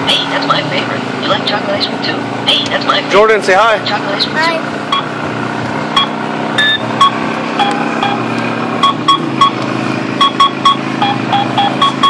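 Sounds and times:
steady machine hum: 0.0s - 12.0s
two-tone electronic beeps: 1.2s - 3.1s, 3.9s - 5.1s, 5.8s - 8.2s, 8.8s - 9.6s, 10.2s - 12.0s.

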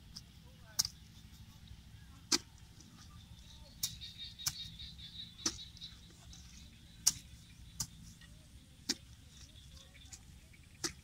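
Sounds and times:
metal blade chopping dry earth: 10.8s - 11.0s.

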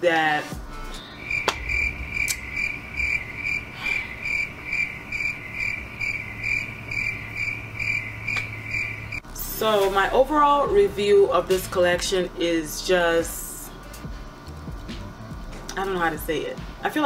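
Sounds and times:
cricket chirping: 1.0s - 9.2s.

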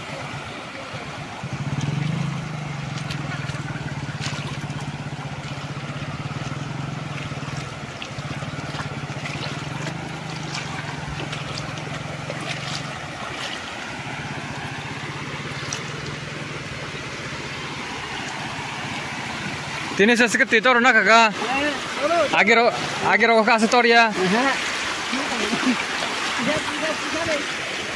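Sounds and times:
flowing water rushing: 0.0s - 27.9s
small water splashes: 0.0s - 27.9s
motorcycle engine running: 1.0s - 20.0s.

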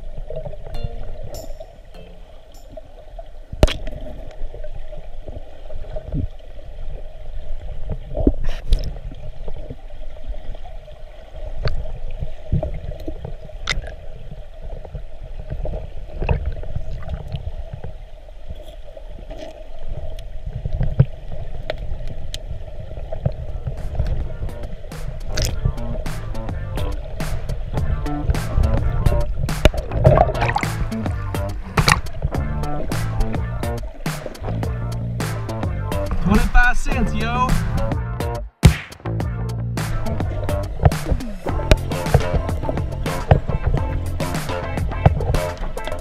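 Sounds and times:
muffled underwater water rumble: 0.0s - 1.3s, 2.8s - 38.5s, 39.1s - 46.0s
sharp underwater clicks and knocks: 2.4s - 4.4s, 12.5s - 14.1s, 14.8s - 18.0s, 23.1s - 46.0s.

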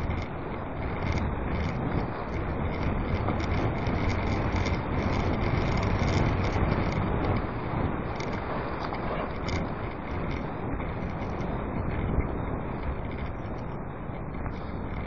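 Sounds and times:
bike rattling: 0.0s - 15.0s
wind rush on microphone: 0.0s - 15.0s.

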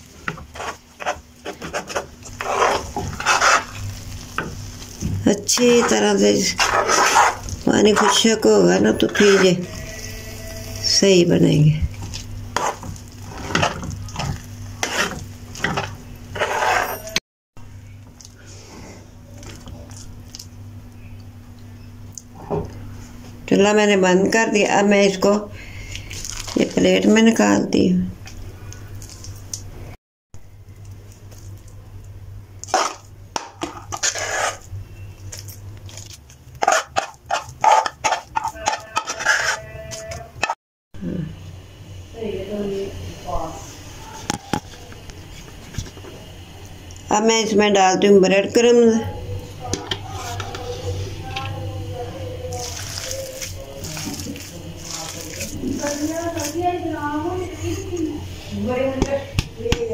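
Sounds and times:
light sizzle: 0.0s - 8.2s, 8.8s - 16.4s, 52.4s - 59.3s
metal spatula scraping frying pan: 0.5s - 4.5s, 5.4s - 10.8s, 12.5s - 17.2s, 32.7s - 34.6s, 36.6s - 40.6s.

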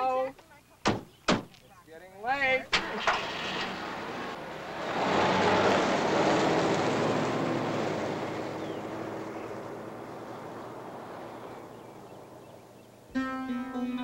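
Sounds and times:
car driving off: 2.7s - 13.1s.

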